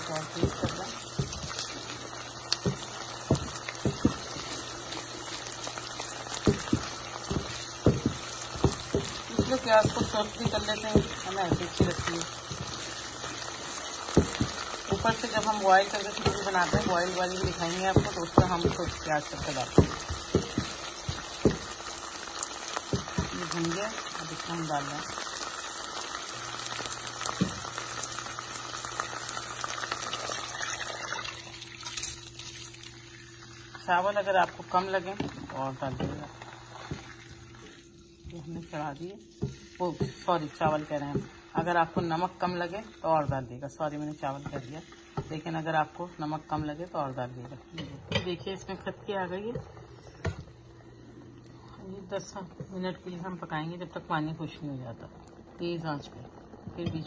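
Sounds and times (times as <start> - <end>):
rice sizzling in hot ghee: 0.0 - 45.8
spatula knocking and scraping pan: 0.1 - 22.2, 22.8 - 23.7, 39.4 - 42.3
water poured into pan: 25.3 - 33.7.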